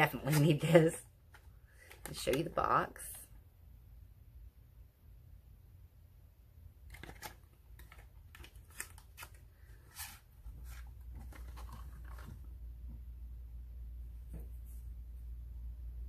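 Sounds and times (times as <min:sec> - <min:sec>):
low steady hum: 0:00.0 - 0:16.0
paperboard carton crackling: 0:06.9 - 0:12.5.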